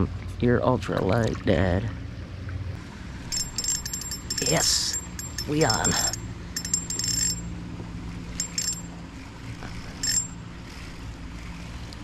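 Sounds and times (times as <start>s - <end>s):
fishing reel whirring and clicking: 3.3s - 7.5s, 8.3s - 8.9s, 9.7s - 12.0s.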